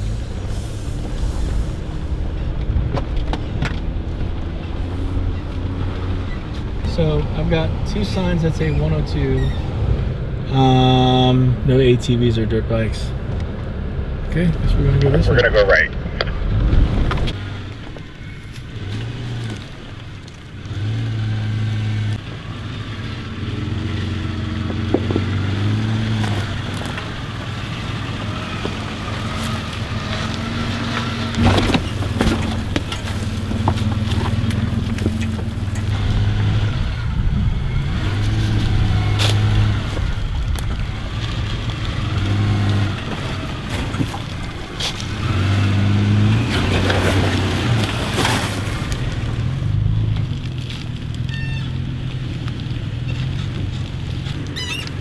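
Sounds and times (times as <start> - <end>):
off-road vehicle engine crawling: 0.0 - 55.0.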